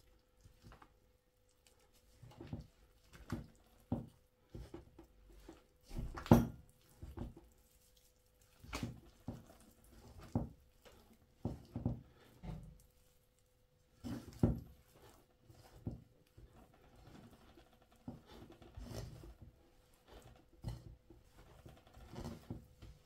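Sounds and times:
hands squishing dough: 0.0s - 23.0s.

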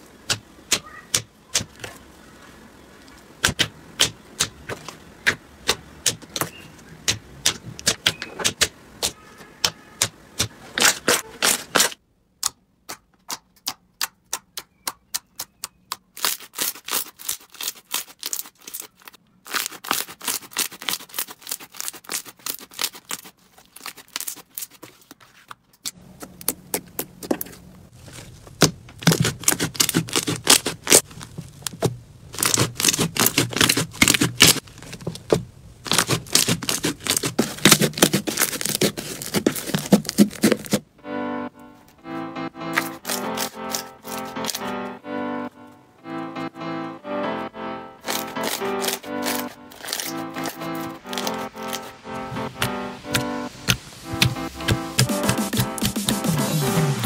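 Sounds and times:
slime crackling and popping: 15.3s - 24.8s, 28.0s - 40.8s, 42.8s - 44.7s, 48.0s - 56.1s.

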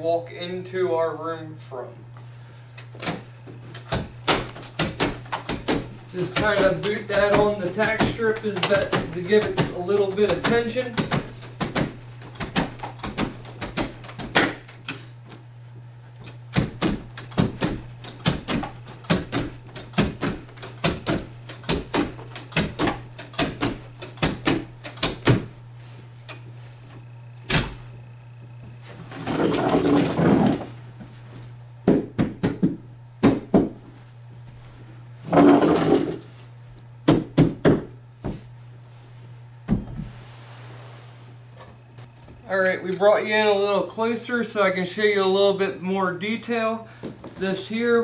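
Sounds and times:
carpet rushing scrape: 28.8s - 30.8s, 35.3s - 36.4s.

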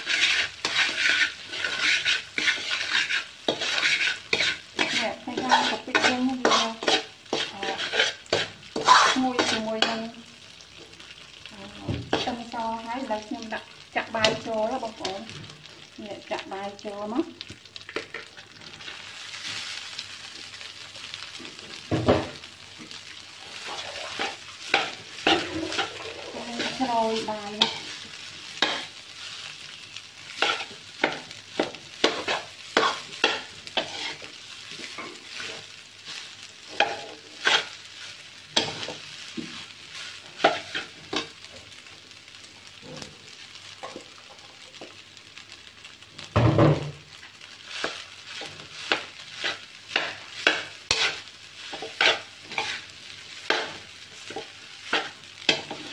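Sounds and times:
metal spatula scraping a wok: 0.0s - 10.1s, 23.5s - 29.5s, 30.3s - 41.4s, 47.6s - 55.9s
steady sizzle: 0.0s - 55.9s.

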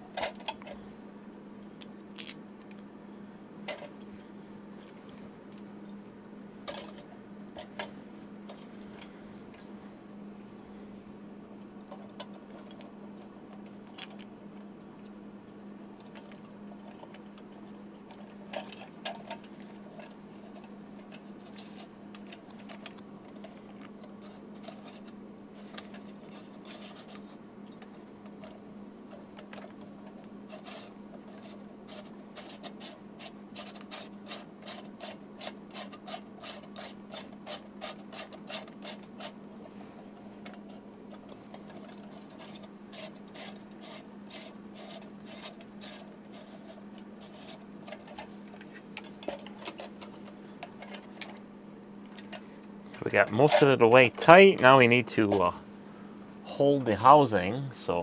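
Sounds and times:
steady low hum: 0.0s - 58.0s
plastic lens clicking and rubbing: 1.8s - 2.8s.

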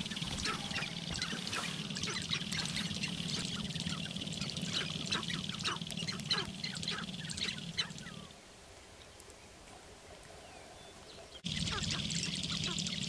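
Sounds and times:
grouse drumming rattle: 0.0s - 8.1s
grouse clucks and squawks: 0.0s - 8.3s, 11.4s - 13.0s.

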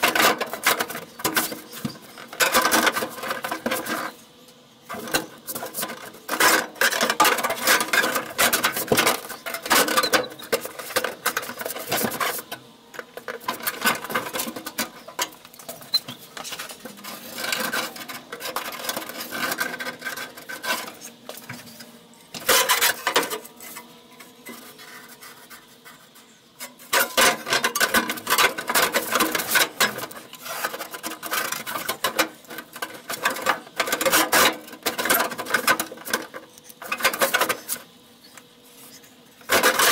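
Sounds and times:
sheet metal scraping and rattling: 0.0s - 4.2s, 4.8s - 25.8s, 26.6s - 37.9s, 38.7s - 39.9s.

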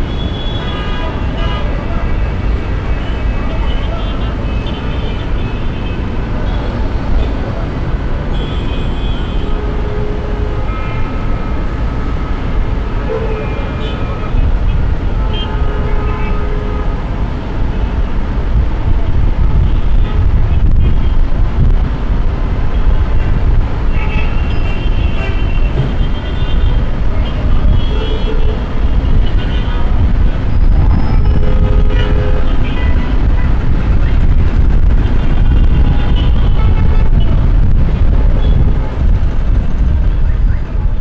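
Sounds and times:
traffic rumble: 0.0s - 41.0s
car horn toots: 8.3s - 17.0s, 23.2s - 34.2s, 35.0s - 37.5s.

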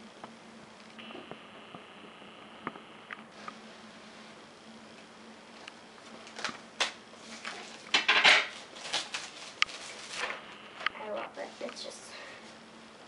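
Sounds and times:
plastic wrap rustling: 6.1s - 10.6s.

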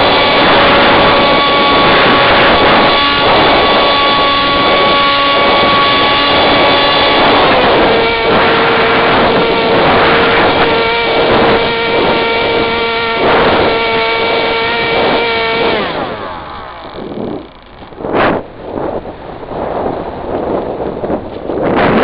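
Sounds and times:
electric motor propeller whine: 0.0s - 22.0s
wind rushing over camera: 0.0s - 22.0s.

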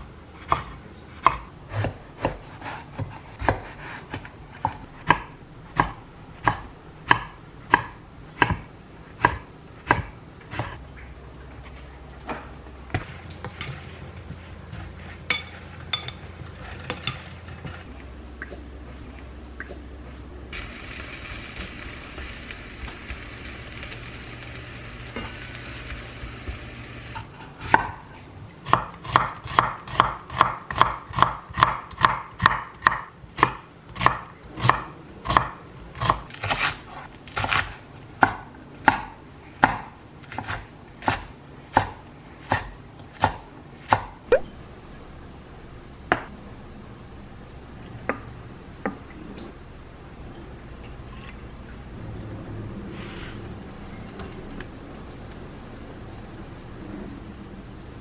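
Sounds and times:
knife chopping on wooden board: 0.5s - 10.8s, 28.7s - 36.8s
hiss-like rustle: 52.9s - 53.5s.

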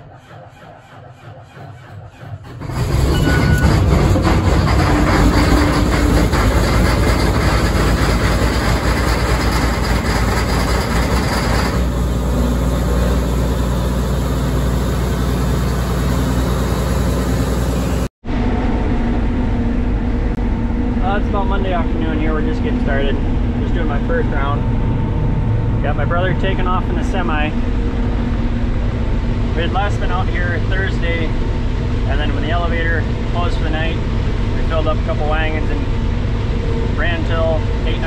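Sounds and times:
combine harvester engine: 0.0s - 38.0s.

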